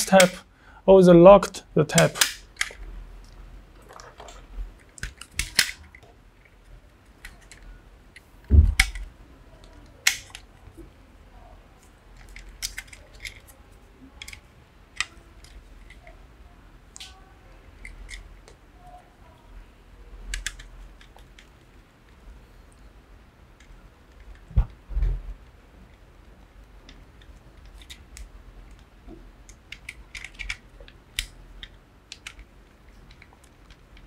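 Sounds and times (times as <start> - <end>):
low thump: 8.5 - 8.8.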